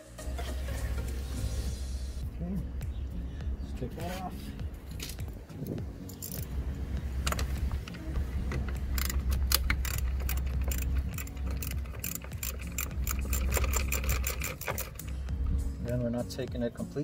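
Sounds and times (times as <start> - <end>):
wind rumble on microphone: 2.2 - 9.7
socket ratchet clicking: 6.0 - 6.5, 7.2 - 15.3.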